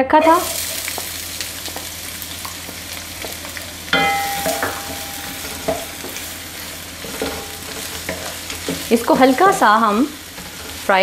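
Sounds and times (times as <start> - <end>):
onion sizzling in hot oil: 0.0 - 11.0
wooden spatula knocking pan: 4.0 - 6.3.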